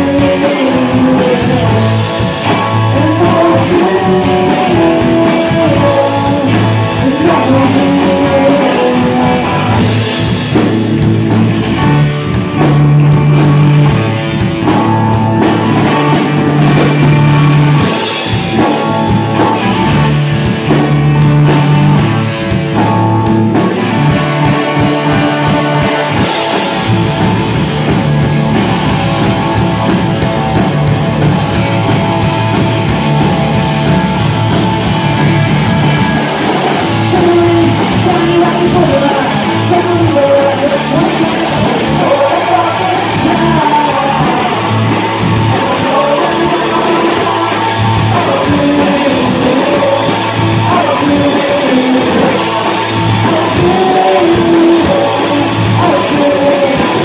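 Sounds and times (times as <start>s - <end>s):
person singing: 0.0s - 10.8s, 22.8s - 27.4s, 36.5s - 57.0s
bass guitar: 0.0s - 57.0s
drum kit: 0.0s - 57.0s
electric guitars: 0.0s - 57.0s
keyboard: 0.0s - 57.0s.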